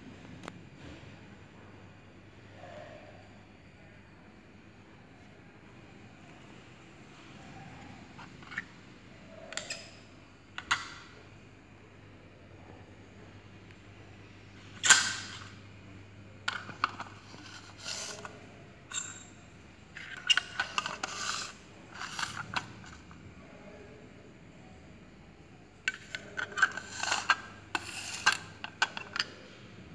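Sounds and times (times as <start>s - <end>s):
plastic dishes clicking on table: 10.6s - 11.1s, 25.9s - 29.5s.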